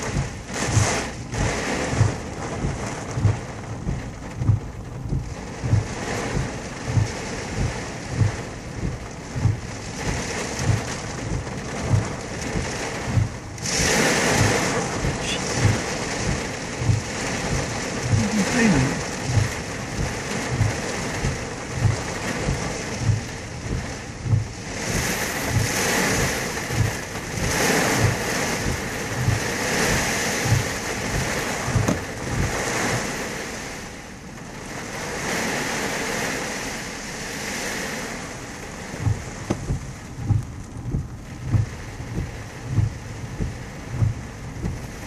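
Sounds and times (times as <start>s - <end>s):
heavy rain on car roof: 0.0s - 45.0s
windshield wipers sweeping: 0.0s - 45.0s
steady low pulse: 38.8s - 45.0s.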